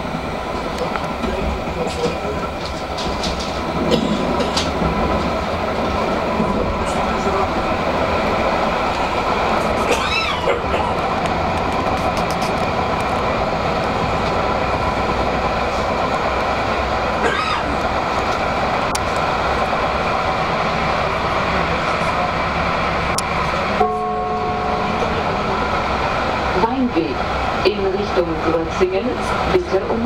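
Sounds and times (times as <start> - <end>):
tram wheels rumbling on rail: 0.0 - 30.0
steady tones: 22.4 - 29.0.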